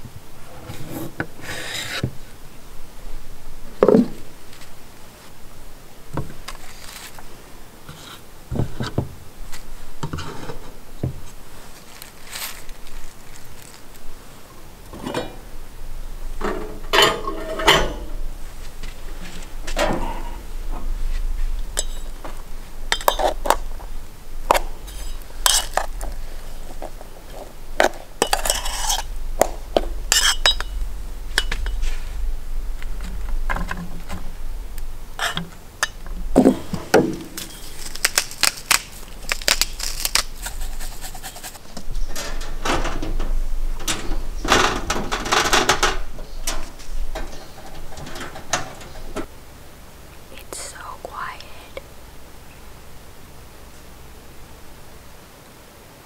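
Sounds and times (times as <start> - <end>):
dishes and utensils clinking: 16.4 - 18.2, 21.8 - 22.1, 22.9 - 23.6, 27.8 - 30.8, 31.4 - 31.9, 41.8 - 49.3.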